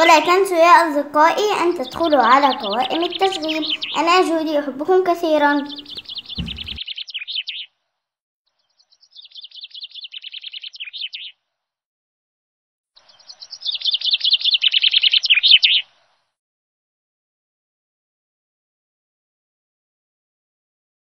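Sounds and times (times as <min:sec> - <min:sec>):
songbird trilled chirps: 0:01.7 - 0:04.2, 0:05.6 - 0:07.7, 0:08.6 - 0:11.4, 0:13.0 - 0:15.9.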